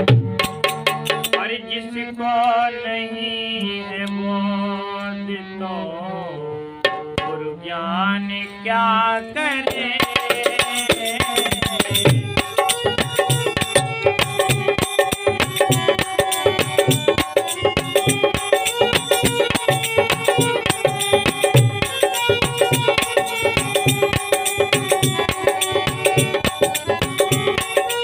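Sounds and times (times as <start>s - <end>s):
hand drum beat: 0.0s - 1.4s, 10.0s - 28.0s
harmonium drone: 0.0s - 28.0s
man singing: 1.3s - 13.0s.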